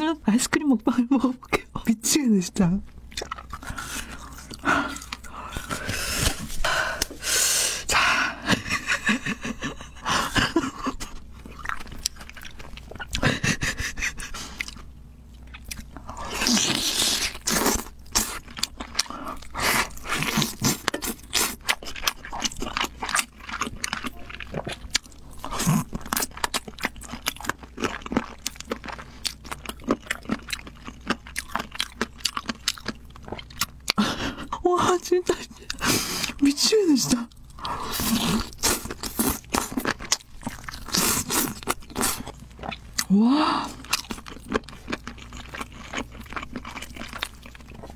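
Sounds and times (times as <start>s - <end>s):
chewing and crunching food: 2.8s - 7.2s, 8.4s - 47.9s.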